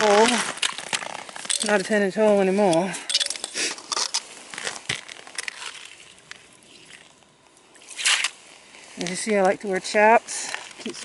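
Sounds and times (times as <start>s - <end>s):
ice crunching and clinking: 0.0s - 8.3s.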